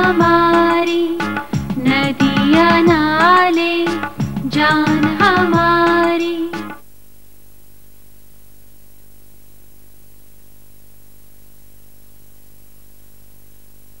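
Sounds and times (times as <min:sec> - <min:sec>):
even hiss: 0:00.0 - 0:06.8.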